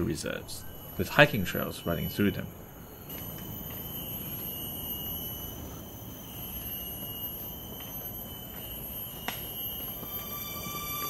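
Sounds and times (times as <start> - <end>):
faint background hiss: 0.0 - 11.0
insects droning: 0.0 - 11.0.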